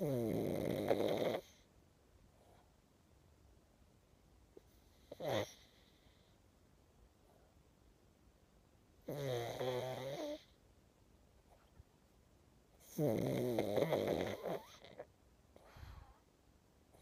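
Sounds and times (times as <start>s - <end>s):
dog snoring: 0.0s - 1.6s, 4.6s - 6.3s, 9.0s - 10.6s, 12.8s - 16.2s.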